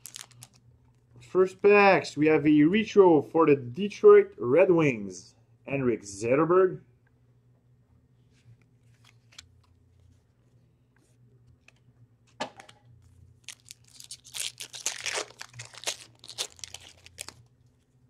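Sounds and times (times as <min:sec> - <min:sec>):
wrapper crinkling: 0:00.0 - 0:00.6, 0:13.4 - 0:17.9.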